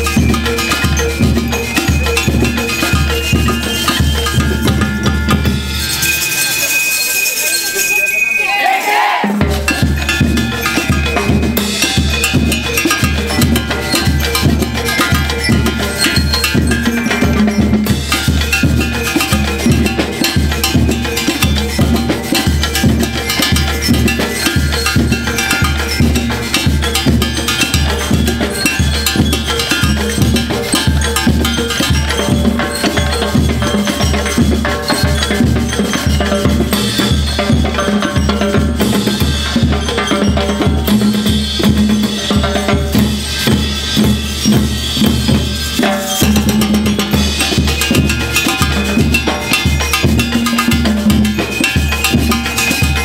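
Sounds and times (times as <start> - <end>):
marching band playing: 0.0 - 7.1, 8.5 - 53.0
conga drums beating: 0.0 - 53.0
brass melody: 4.2 - 6.4.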